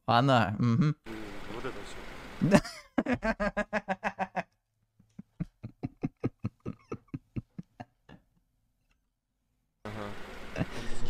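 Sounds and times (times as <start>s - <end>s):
man laughing: 2.4s - 8.2s, 10.5s - 11.0s.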